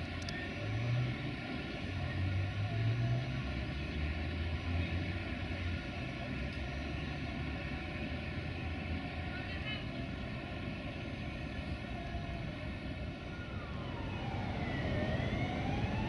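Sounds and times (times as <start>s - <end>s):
station ambience: 0.0s - 16.0s
diesel railcar idling: 3.6s - 16.0s.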